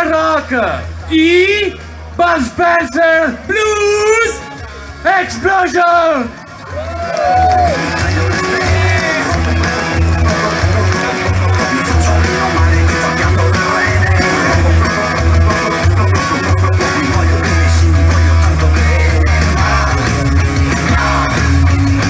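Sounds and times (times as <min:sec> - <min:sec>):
drums: 0:00.0 - 0:22.0
electric guitar riff: 0:07.7 - 0:22.0.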